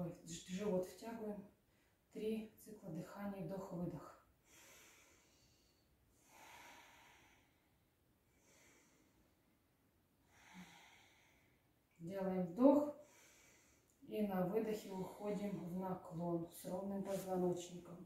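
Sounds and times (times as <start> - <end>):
slow deep breathing: 4.4 - 9.6, 10.2 - 11.8, 13.0 - 14.0.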